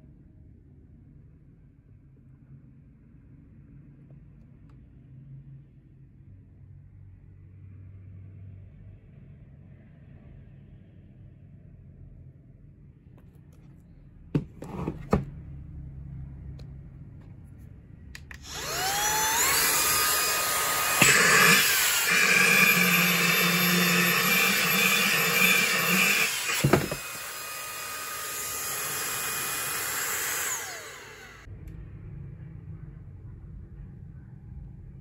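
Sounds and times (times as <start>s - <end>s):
handheld vacuum running: 18.2s - 31.5s.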